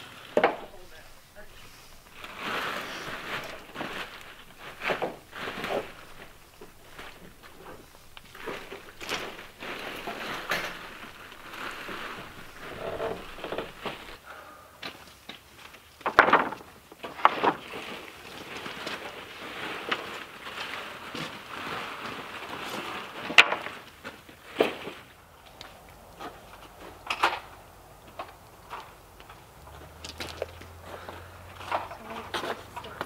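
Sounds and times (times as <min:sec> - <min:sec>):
paint roller scrubbing wood: 0:00.0 - 0:14.2.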